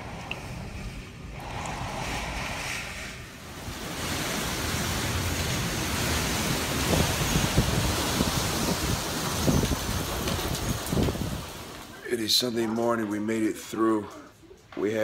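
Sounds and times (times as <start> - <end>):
wind buffeting microphone: 0.0 - 11.8
wind rushing through trees: 0.0 - 12.1
rain: 0.0 - 12.6.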